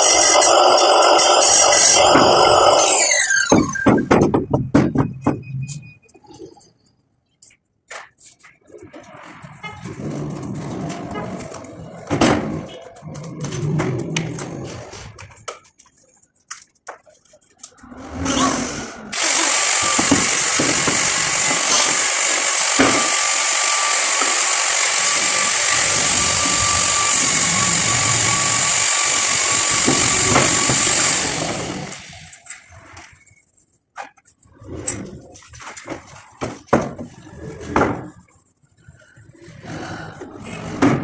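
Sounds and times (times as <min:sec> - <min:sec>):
power tool whining: 0:00.0 - 0:03.8, 0:19.1 - 0:32.7
tools and wood clattering: 0:19.2 - 0:23.4, 0:29.7 - 0:38.9.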